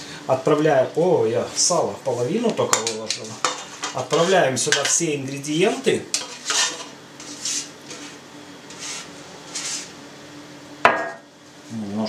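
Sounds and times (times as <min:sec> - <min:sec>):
fat scraped off a metal tray: 0:06.1 - 0:09.9.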